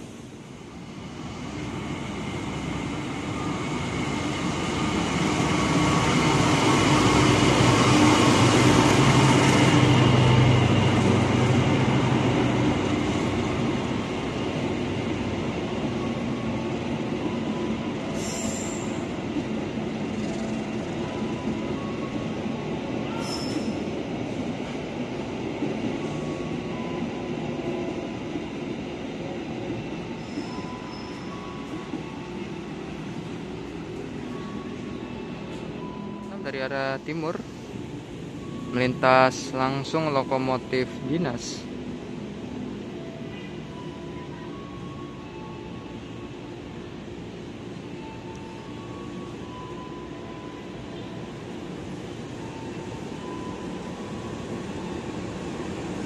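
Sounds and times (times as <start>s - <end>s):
diesel locomotive engine: 0.0s - 56.0s
high wheel squeals: 23.1s - 23.8s, 30.2s - 31.6s.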